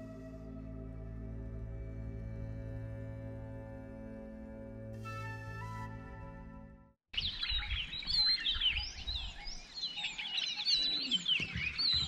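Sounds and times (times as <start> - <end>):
background music: 0.0 - 7.0
birds chirping and whistling: 7.2 - 12.0.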